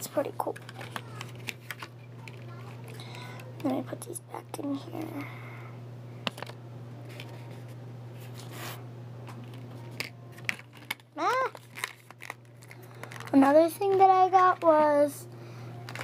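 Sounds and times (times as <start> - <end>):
steady low hum: 0.0 - 16.0
package rustling: 9.4 - 14.9.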